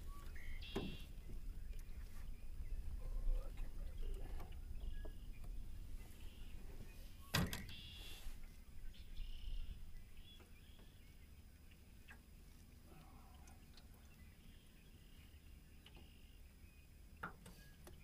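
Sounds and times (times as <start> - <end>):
wind rumbling on microphone: 0.0 - 7.7.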